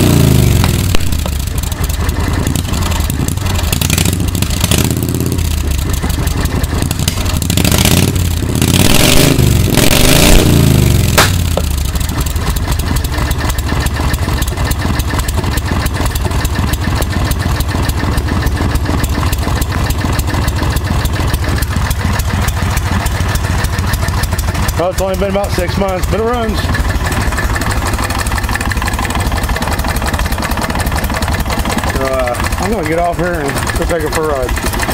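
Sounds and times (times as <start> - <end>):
golf cart engine running: 0.0 - 34.9
sharp click: 11.1 - 11.7.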